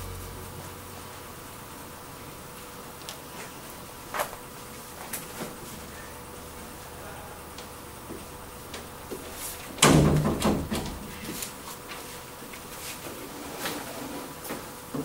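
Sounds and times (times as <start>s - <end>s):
door banging shut: 9.8s - 11.1s.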